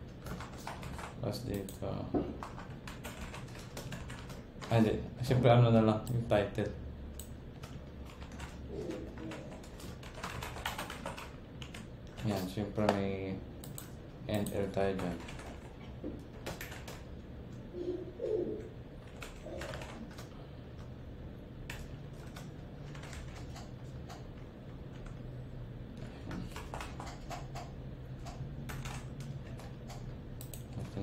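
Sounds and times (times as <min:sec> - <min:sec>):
low steady hum: 0:00.0 - 0:31.0
computer keyboard typing: 0:00.2 - 0:01.8, 0:02.4 - 0:05.0, 0:07.2 - 0:13.0, 0:13.6 - 0:17.2, 0:19.0 - 0:20.9, 0:21.6 - 0:25.3, 0:25.9 - 0:31.0.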